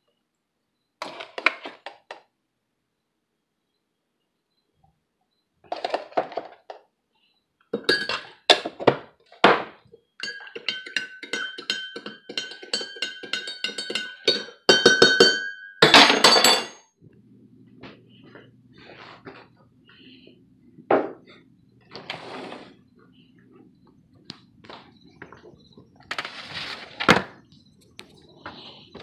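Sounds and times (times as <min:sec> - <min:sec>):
spoon clinking against mug: 0:07.8 - 0:08.4, 0:10.2 - 0:16.8
rustling noise: 0:24.6 - 0:27.4.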